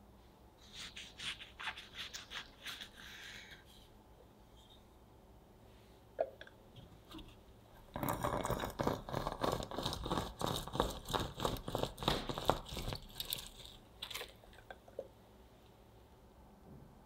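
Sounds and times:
lemon grinding on citrus reamer: 7.9 - 14.6.

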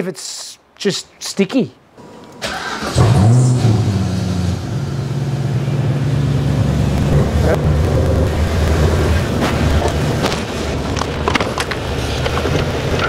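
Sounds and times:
car engine idling: 2.4 - 13.0.

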